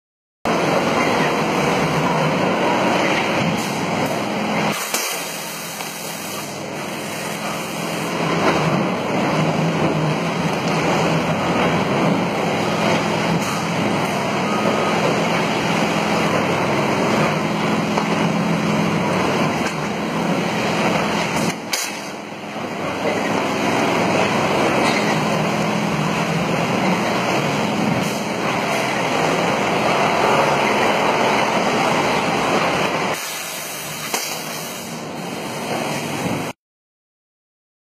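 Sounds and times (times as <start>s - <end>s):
veneer lathe machine running: 6.6s - 33.2s.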